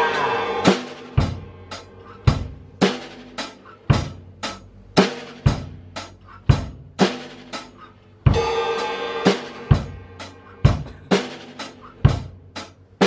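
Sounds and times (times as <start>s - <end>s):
crash cymbal ringing: 0.0s - 2.0s, 8.4s - 10.6s
bass drum and snare beat: 0.0s - 13.0s.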